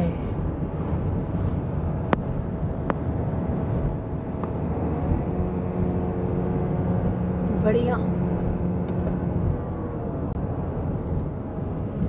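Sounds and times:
car driving at highway speed: 0.0 - 12.0
low steady hum: 0.0 - 12.0.

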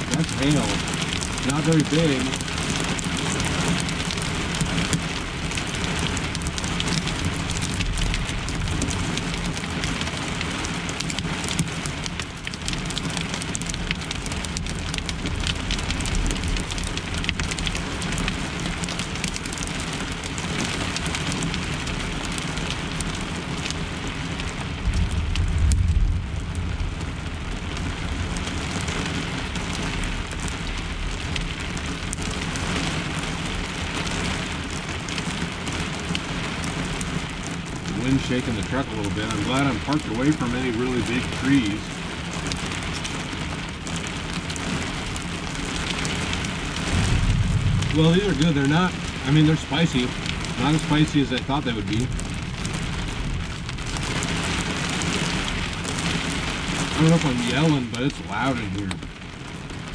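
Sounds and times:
rain and hail drumming on roof: 0.0 - 59.9
low rumble: 24.5 - 31.4, 46.4 - 57.2.

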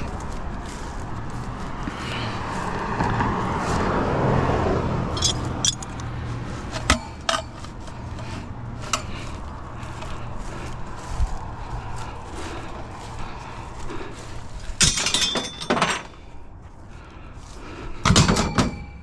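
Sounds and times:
steel pipes knocking together: 5.1 - 6.1, 6.7 - 7.8, 14.7 - 16.2, 18.0 - 19.0.

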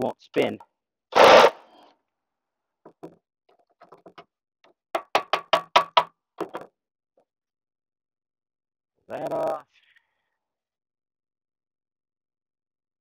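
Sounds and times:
power tool burst: 1.2 - 1.6.

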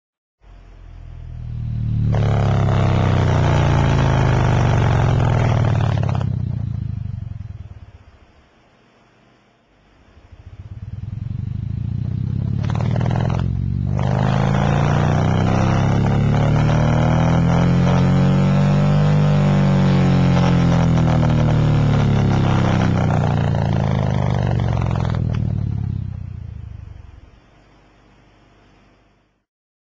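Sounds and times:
subwoofer low rough buzzing: 0.4 - 8.4, 10.2 - 27.4.

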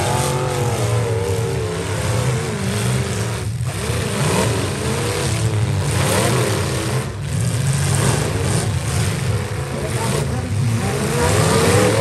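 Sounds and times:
engines running steadily: 0.0 - 12.0
truck engines revving hard: 0.0 - 12.0.

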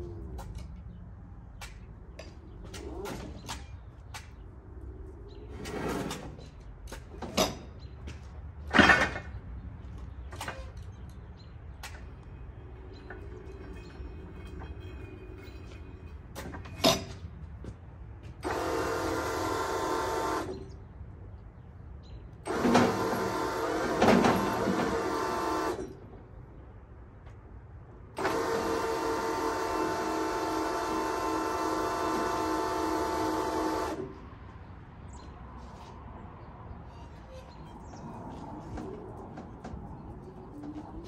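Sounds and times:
hydraulic pump motor whine: 18.4 - 20.7, 22.5 - 26.0, 28.2 - 34.1.

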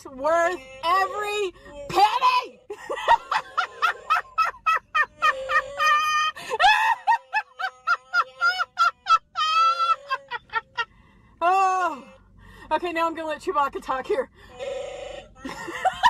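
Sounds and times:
woman laughing hysterically: 2.7 - 10.9, 15.4 - 16.0.

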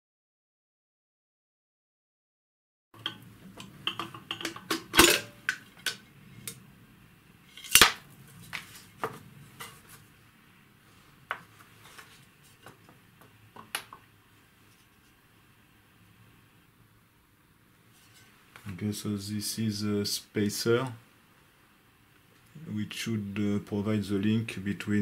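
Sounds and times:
metal mechanism clicking and knocking: 3.0 - 6.6.

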